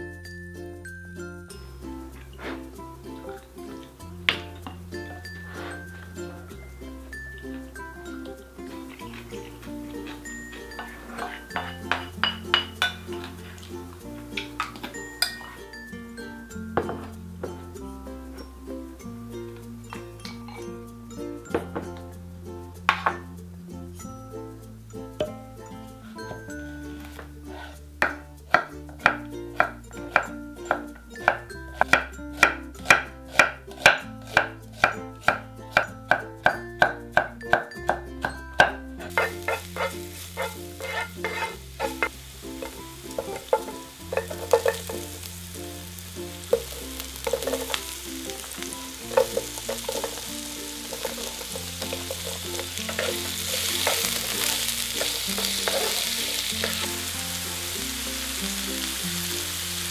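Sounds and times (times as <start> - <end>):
light background music: 0.0 - 59.9
oil sizzling in frying pan: 2.0 - 17.1, 25.0 - 59.9
stirring scrapes in pan: 2.2 - 3.4, 5.1 - 6.4, 7.5 - 13.7, 26.1 - 29.2, 39.0 - 57.2.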